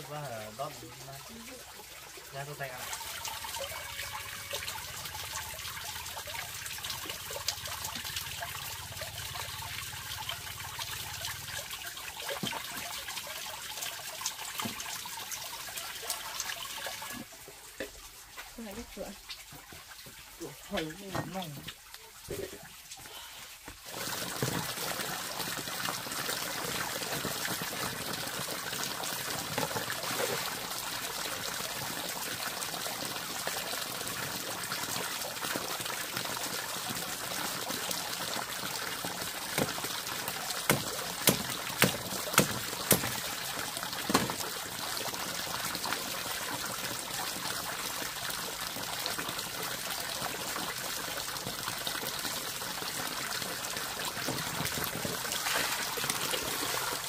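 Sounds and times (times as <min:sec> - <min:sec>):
water trickling: 0:00.0 - 0:57.0
sharp knocks: 0:40.7 - 0:43.2.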